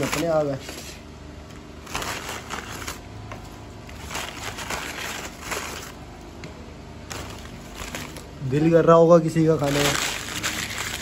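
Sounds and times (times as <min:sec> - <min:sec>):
paper bag rustling: 0:00.0 - 0:01.0, 0:01.8 - 0:06.0, 0:07.1 - 0:08.4, 0:09.4 - 0:11.0.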